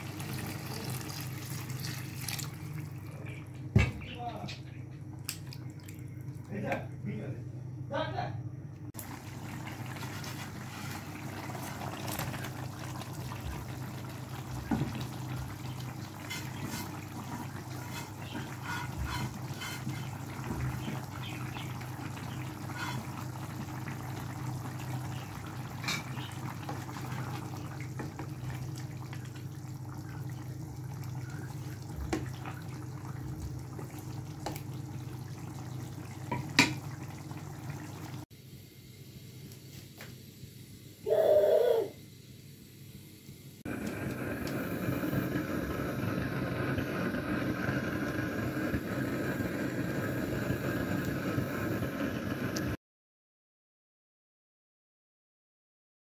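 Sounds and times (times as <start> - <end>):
curry bubbling in a pan: 0.0 - 3.4, 9.0 - 38.3, 43.7 - 52.8.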